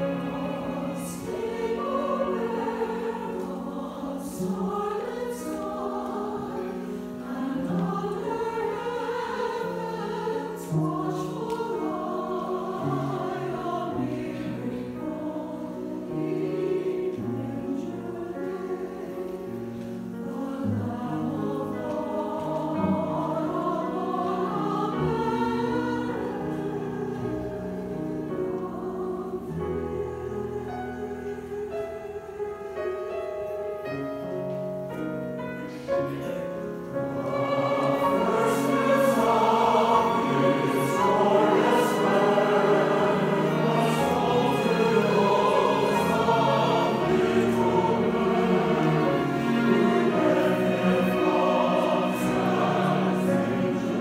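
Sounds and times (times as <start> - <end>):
mixed choir singing: 0.0 - 54.0
violin playing: 37.1 - 54.0.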